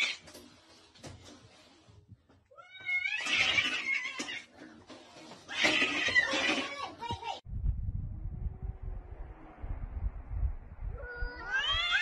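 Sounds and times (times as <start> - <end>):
cat yowling: 11.0 - 12.0.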